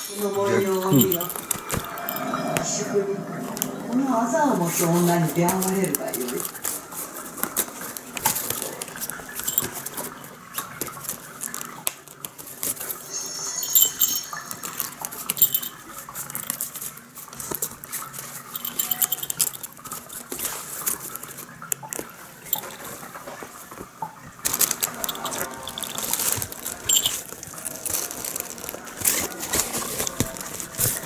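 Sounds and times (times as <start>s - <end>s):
high-pitched jingles: 0.0s - 2.6s, 13.1s - 16.6s, 18.4s - 20.3s, 24.9s - 27.3s.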